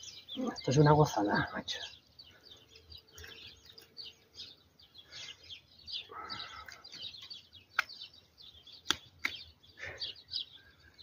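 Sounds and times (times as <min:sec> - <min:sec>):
small birds chirping: 0:00.0 - 0:11.0
sharp clicks: 0:07.7 - 0:08.1, 0:08.8 - 0:09.5.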